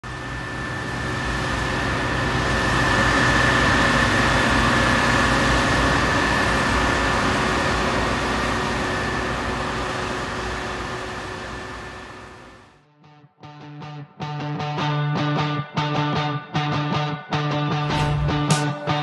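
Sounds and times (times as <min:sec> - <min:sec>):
combine harvester drone with whine: 0:00.0 - 0:12.8.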